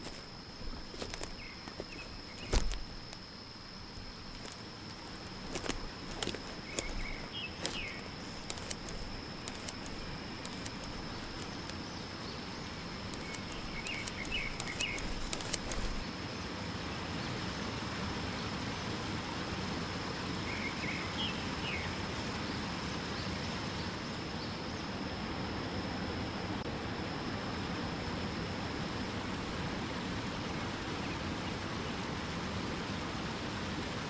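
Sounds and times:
footsteps on forest floor: 0.0 - 3.2, 4.3 - 11.8, 13.0 - 16.0
twigs snapping: 0.0 - 3.2, 4.3 - 11.9, 13.0 - 16.0
high insect drone: 0.0 - 34.0
bird chirps: 5.8 - 16.0.

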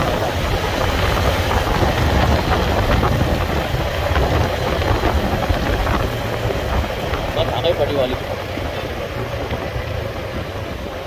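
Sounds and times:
motorcycle engine rumble: 0.0 - 11.0
wind rushing over microphone: 0.0 - 11.0.

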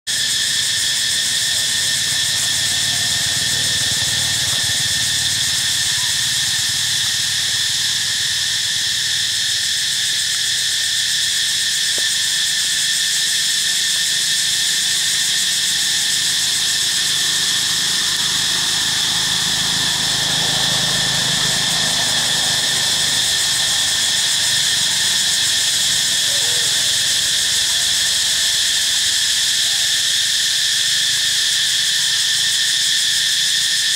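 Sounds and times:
high-pitched insect chorus: 0.1 - 33.9.

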